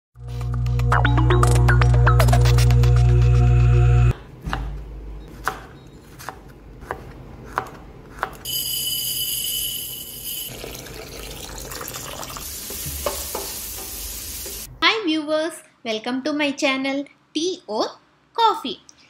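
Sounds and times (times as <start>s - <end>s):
steady hiss with ringing tone: 8.5s - 10.6s.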